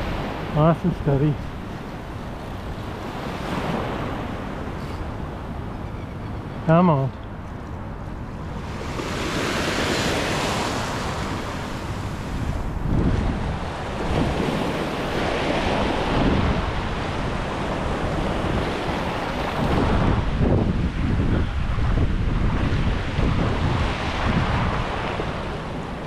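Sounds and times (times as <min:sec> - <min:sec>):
wind buffeting microphone: 0:00.0 - 0:26.0
small waves washing over sand: 0:07.8 - 0:26.0.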